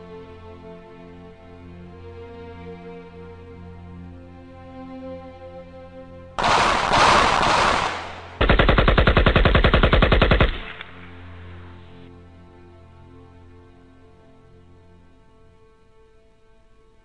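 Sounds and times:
soft background music: 0.0 - 17.0
automatic gunfire: 6.4 - 11.8.

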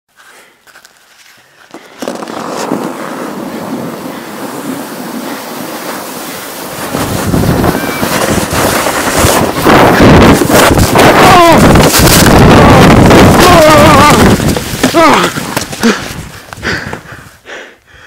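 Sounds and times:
sled scraping on snow: 1.7 - 17.0
wind buffeting microphone: 2.1 - 17.4.

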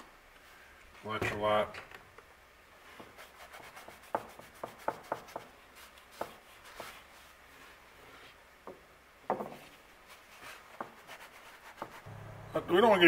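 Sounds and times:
cloth rubbing on knife blade: 2.8 - 8.6, 9.6 - 12.1.

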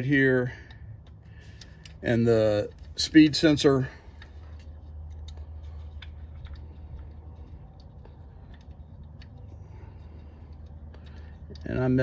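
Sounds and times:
steady low hum: 0.0 - 12.0
small metallic clicks: 0.5 - 3.2.

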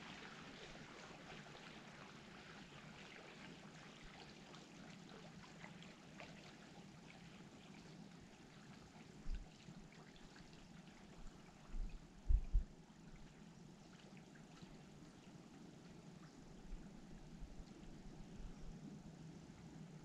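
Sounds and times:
lake water lapping at shore: 0.0 - 12.2, 12.9 - 18.4
short low thumps: 11.8 - 12.7.

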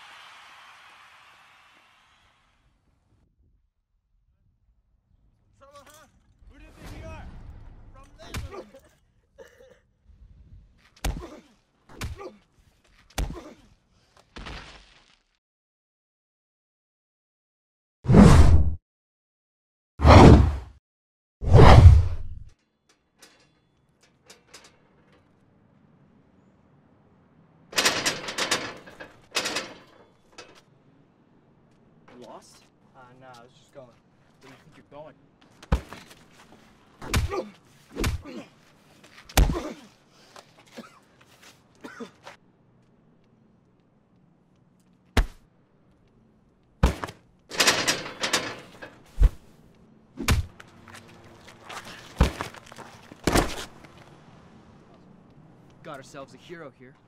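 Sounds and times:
metal gate rattling: 22.6 - 26.2, 27.7 - 30.9, 47.5 - 49.2
faint gate clicks: 22.6 - 26.4, 27.7 - 30.8, 47.5 - 49.2.

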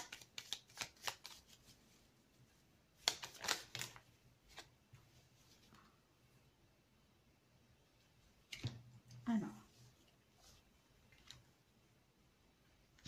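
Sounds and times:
cards being shuffled: 0.0 - 1.8, 3.0 - 4.7.

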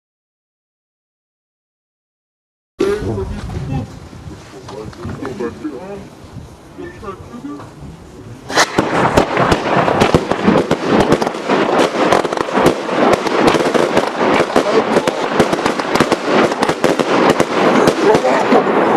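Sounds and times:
rapid firework launches and bangs: 8.4 - 18.9.

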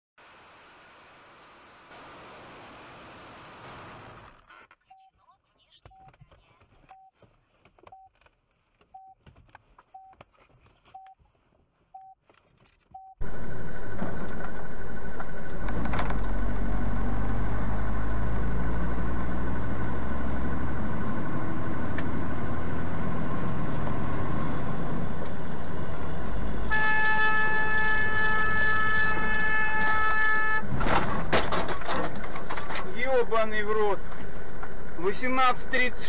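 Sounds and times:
vehicle engine and road rumble: 0.2 - 36.0
vehicle horn: 26.7 - 30.7.

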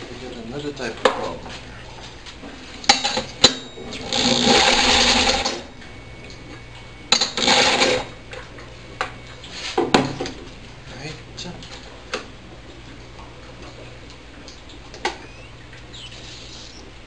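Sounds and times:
sharp clicks: 15.0 - 16.9.

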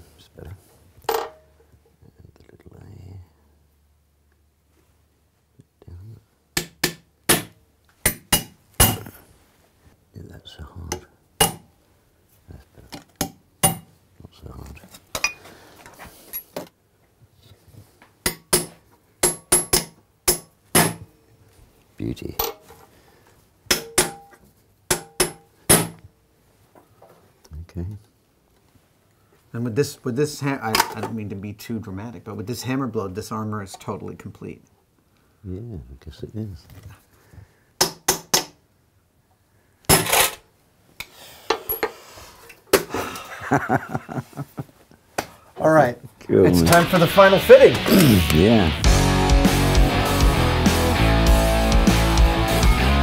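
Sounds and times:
hammer tapping metal punch: 10.9 - 11.7, 13.2 - 13.9, 18.2 - 21.1, 23.7 - 26.0
hammer tapping steel plate: 23.7 - 24.3, 24.9 - 26.0.

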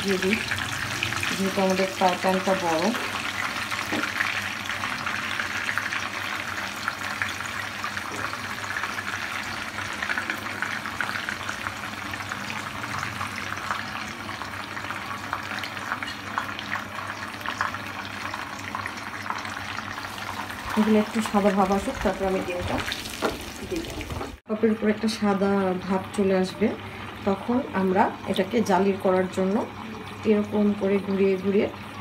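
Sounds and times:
patties sizzling in hot oil: 0.0 - 24.5.

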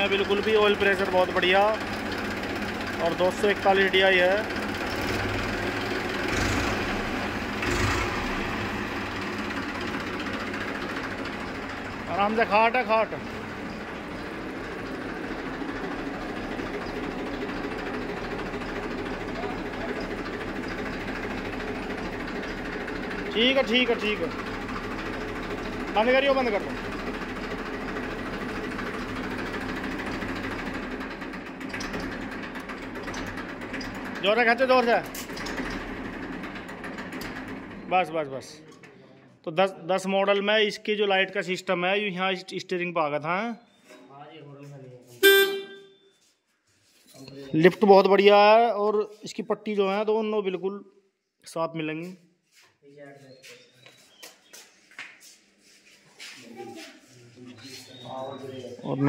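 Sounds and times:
diesel tractor engine idling: 0.0 - 38.4.

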